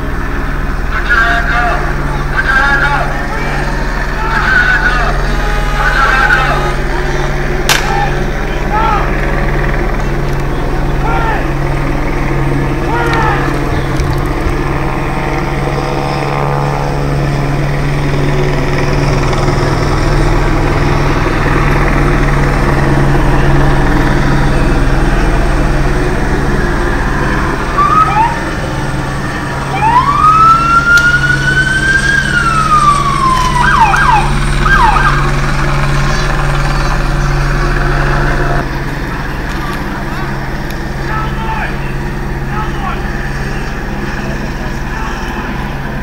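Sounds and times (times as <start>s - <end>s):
steady low drone: 0.0s - 46.0s
police siren wailing and yelping: 23.1s - 38.6s.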